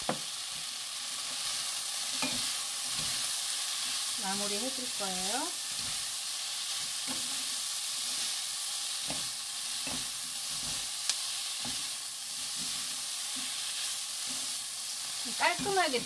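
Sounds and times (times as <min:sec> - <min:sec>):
vegetables sizzling in a pan: 0:00.0 - 0:16.0.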